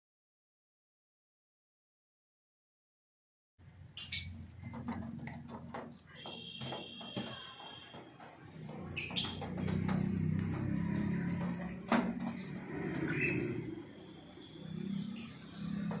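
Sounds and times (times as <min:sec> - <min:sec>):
pigeons cooing: 0:04.2 - 0:16.0.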